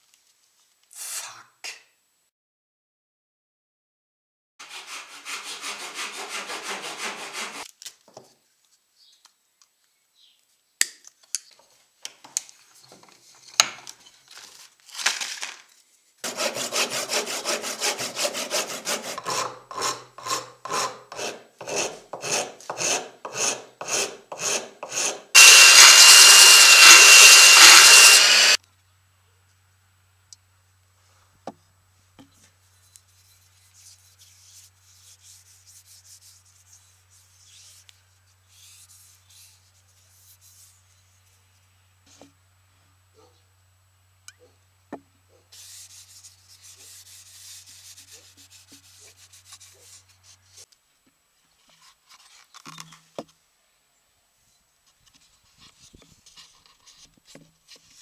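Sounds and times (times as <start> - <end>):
file rasping on wood: 4.6 - 7.7, 16.2 - 28.6
hand saw cutting wood: 4.6 - 7.7, 16.2 - 28.6
loud hiss with high whine: 25.4 - 28.6.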